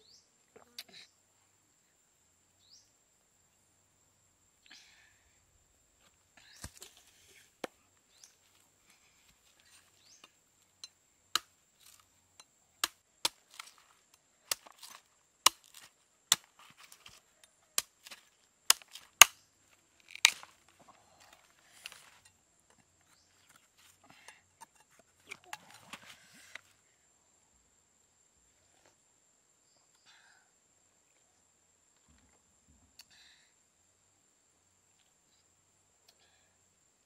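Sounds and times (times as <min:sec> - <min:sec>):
knife hacking coconut: 0:14.5 - 0:16.5.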